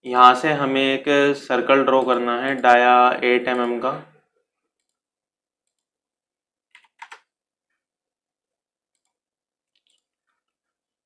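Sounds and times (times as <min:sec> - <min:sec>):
computer mouse clicks: 0:09.0 - 0:10.1.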